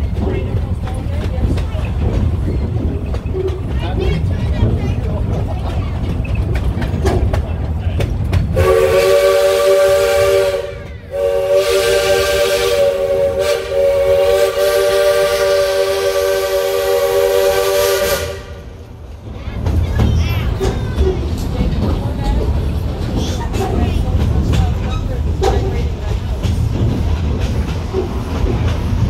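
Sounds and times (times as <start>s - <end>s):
wheels clicking over rail joints: 0.0s - 8.6s, 18.8s - 29.0s
train running rumble: 0.0s - 29.0s
steam locomotive chime whistle: 8.6s - 18.4s.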